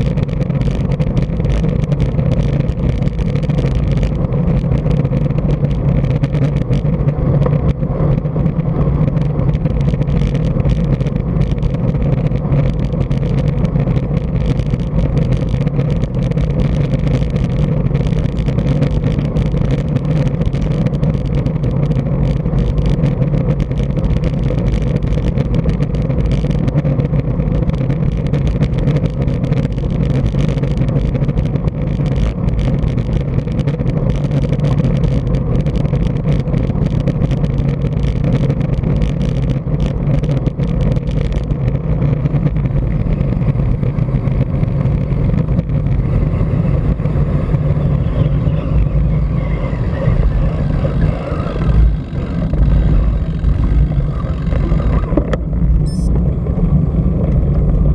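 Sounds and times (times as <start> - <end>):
low road rumble: 0.0 - 57.9
wind rushing on microphone: 0.0 - 57.9.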